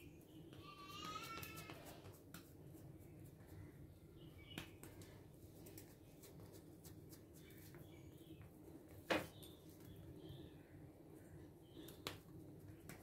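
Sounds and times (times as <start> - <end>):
faint bird chirps: 3.3 - 5.2, 7.4 - 12.8.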